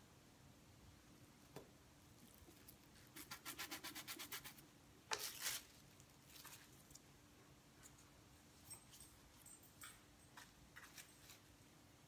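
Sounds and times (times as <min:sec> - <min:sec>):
cling wrap crinkling: 0:05.1 - 0:07.0.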